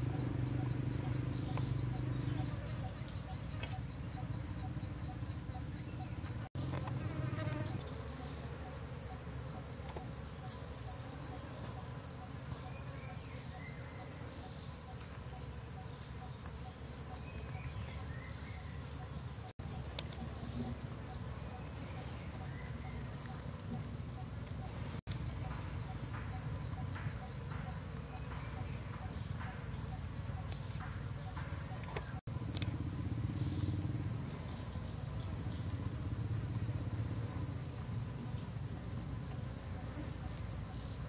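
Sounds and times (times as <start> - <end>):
insects chirring: 0.0 - 41.0.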